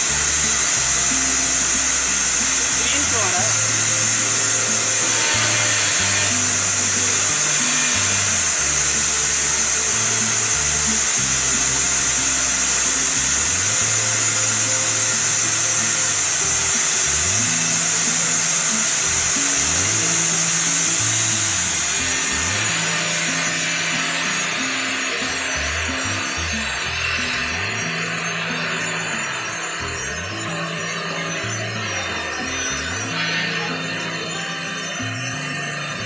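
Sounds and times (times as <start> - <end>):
workshop machinery rushing: 20.5 - 36.0.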